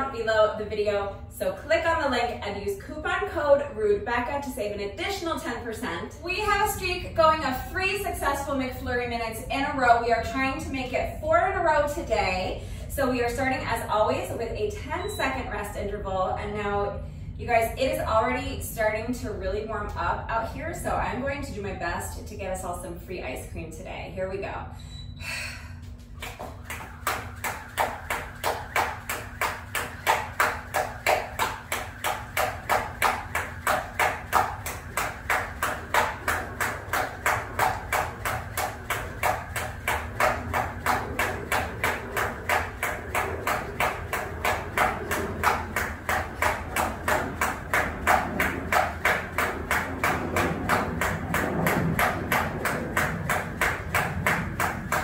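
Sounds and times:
jump rope striking a mat: 26.2 - 55.0.

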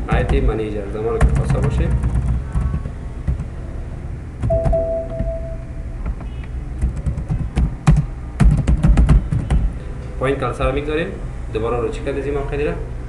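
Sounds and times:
steady tone: 4.5 - 6.0
keyboard typing: 6.8 - 9.6.

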